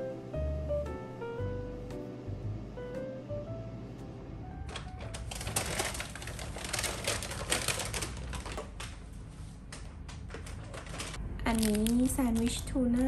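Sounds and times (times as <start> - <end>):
paper bag crinkling: 4.7 - 12.8.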